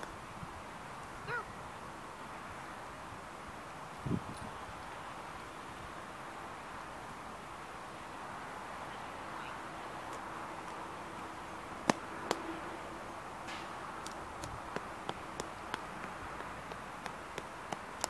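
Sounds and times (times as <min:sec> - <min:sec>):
outdoor background hiss: 0:00.0 - 0:18.0
footsteps on wet asphalt: 0:13.5 - 0:18.0.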